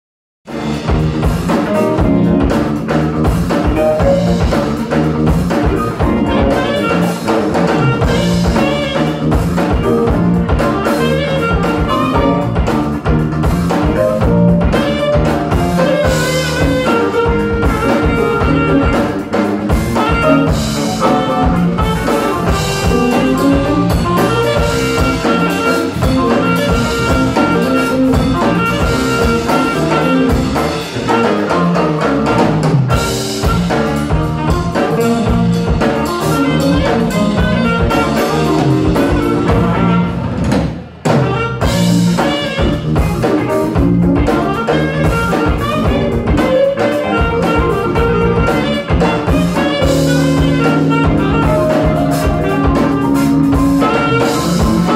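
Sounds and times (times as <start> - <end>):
drum kit: 0.4 - 54.9
electric bass: 0.5 - 54.9
electric guitar: 0.5 - 54.9
keyboard: 0.5 - 54.9
saxophone lead: 0.5 - 54.9.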